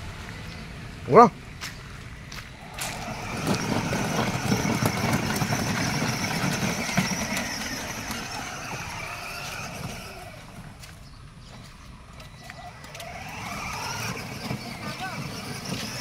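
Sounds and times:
wheels churning through mud and gravel: 0.0s - 16.0s
electric toy motors whining: 2.5s - 10.8s, 12.1s - 16.0s.

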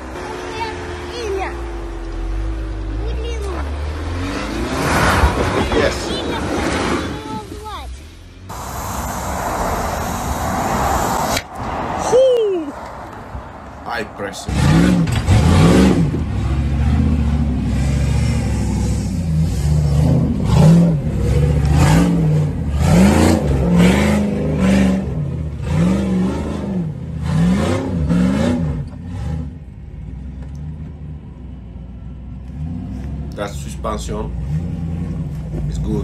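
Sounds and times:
engine revving: 0.0s - 7.7s, 14.3s - 29.8s, 32.4s - 36.0s.

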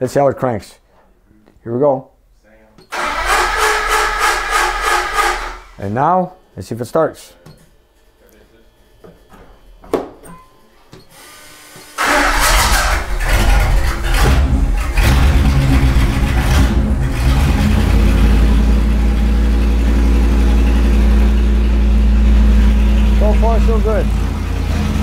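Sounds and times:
engine running unevenly: 12.0s - 25.0s.

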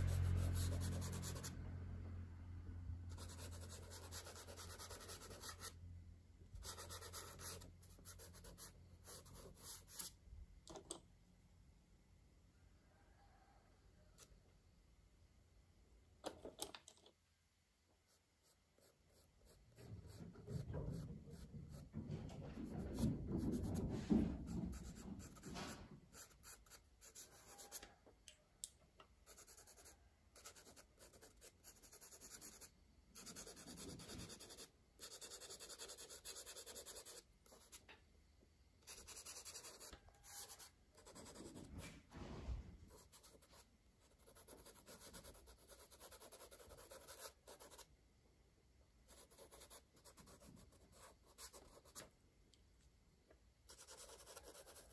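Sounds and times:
crayon scratching on paper: 6.6s - 10.1s, 29.3s - 37.8s, 42.9s - 47.8s, 49.1s - 52.0s, 53.7s - 54.9s.

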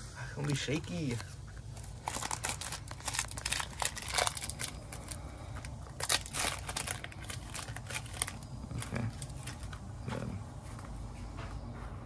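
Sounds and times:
packaging crinkling and tearing: 0.4s - 9.9s.

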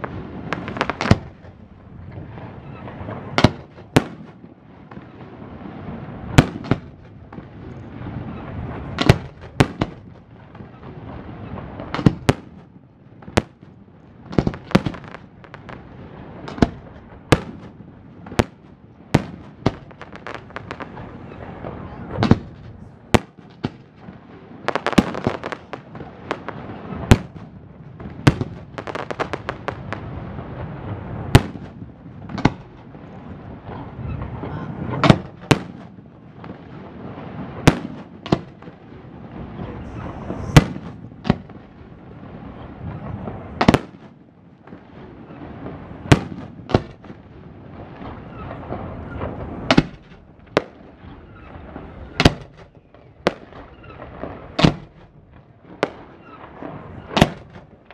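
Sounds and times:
fireworks crackling: 0.0s - 57.9s
firework shells bursting: 39.6s - 41.7s, 48.0s - 57.9s.

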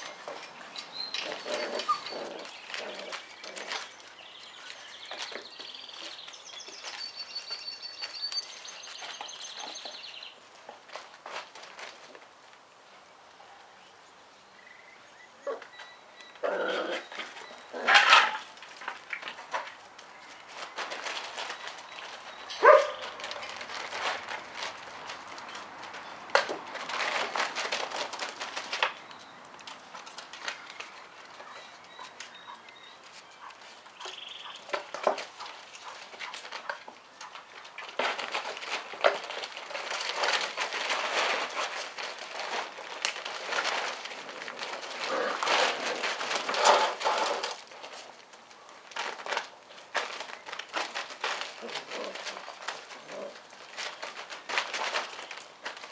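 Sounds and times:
plastic tarp rustling: 0.0s - 12.7s, 16.3s - 55.9s
puppies barking and yapping: 0.2s - 3.8s, 20.8s - 23.9s, 31.3s - 36.9s.

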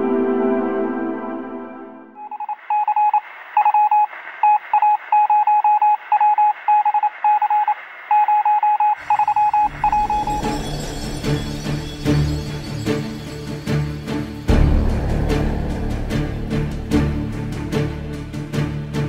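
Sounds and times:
rapid electronic beeps: 2.2s - 10.8s.

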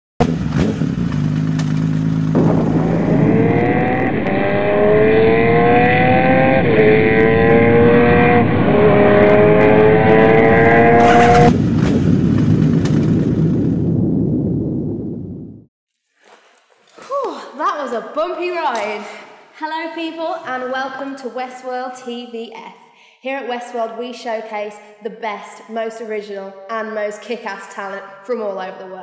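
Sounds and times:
motorcycle engine revving: 0.2s - 13.8s
steady rushing noise: 2.3s - 14.0s.

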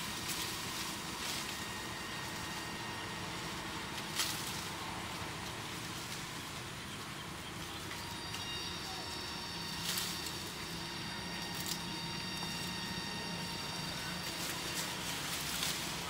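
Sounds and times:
low outdoor rumble: 0.0s - 16.0s
faint high-pitched tones: 7.6s - 16.0s.

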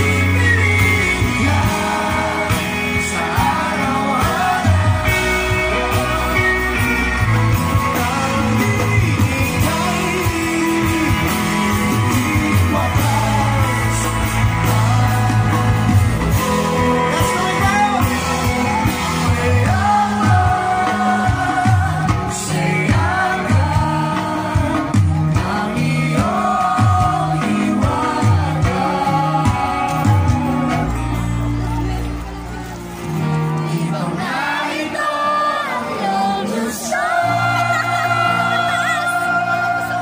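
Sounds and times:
person singing: 0.0s - 31.7s
acoustic guitars: 0.0s - 40.0s
bass: 0.0s - 40.0s
drums: 0.0s - 40.0s.

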